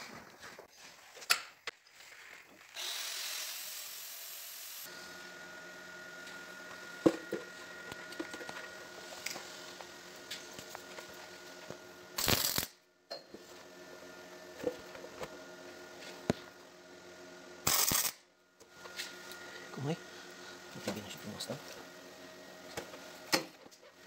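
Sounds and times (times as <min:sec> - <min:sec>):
arc welding hiss: 0:02.8 - 0:04.9, 0:12.2 - 0:12.7, 0:17.6 - 0:18.2.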